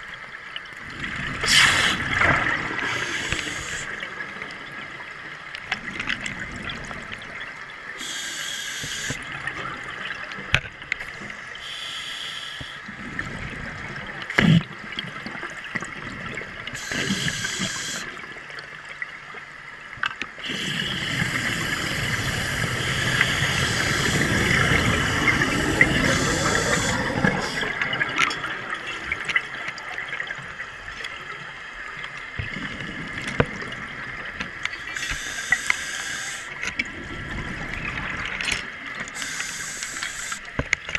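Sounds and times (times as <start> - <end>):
bubbles rushing underwater: 0.8 - 4.5, 20.4 - 30.4
scuba regulator breathing: 1.4 - 2.2, 2.8 - 4.0, 8.0 - 9.2, 11.6 - 12.8, 16.8 - 18.1, 20.4 - 27.9, 34.8 - 36.6, 39.2 - 40.4
underwater hiss: 1.4 - 4.0, 8.0 - 9.2, 11.6 - 12.9, 16.8 - 18.2, 20.4 - 28.0, 34.8 - 36.6, 39.1 - 40.5.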